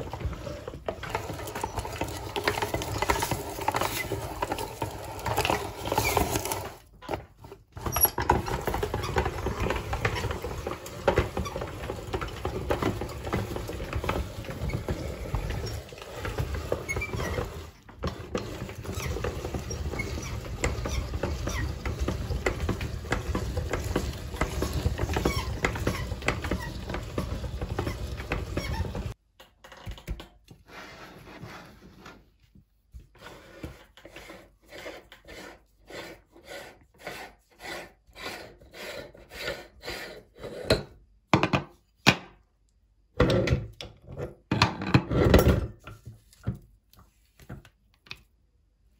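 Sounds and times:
meat grinder crunching ice: 0:00.0 - 0:07.1, 0:07.7 - 0:29.2.

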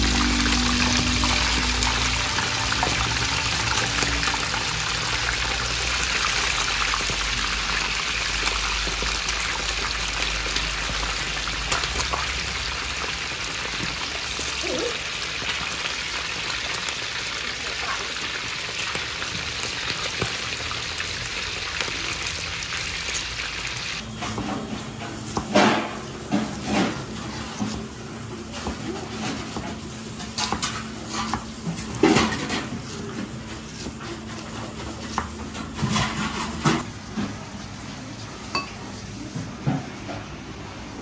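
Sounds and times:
dishes and utensils clattering: 0:24.1 - 0:37.3.

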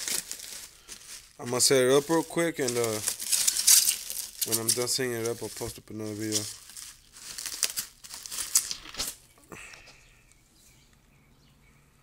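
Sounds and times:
bubble wrap crinkling: 0:00.0 - 0:09.3.

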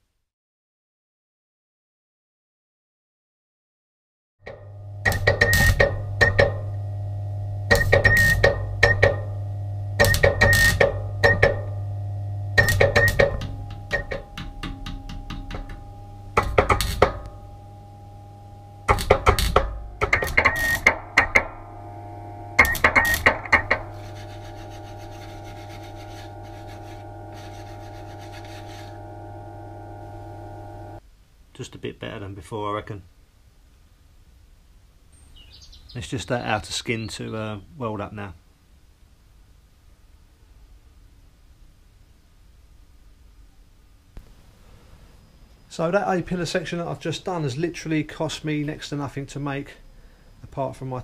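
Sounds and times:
welder crackling: 0:04.5 - 0:31.0
steady low hum: 0:04.5 - 0:31.5.

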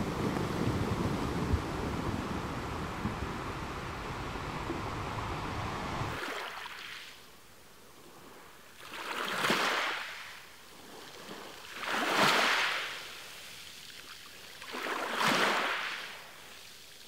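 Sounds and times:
sea waves washing on shore: 0:00.0 - 0:17.0.

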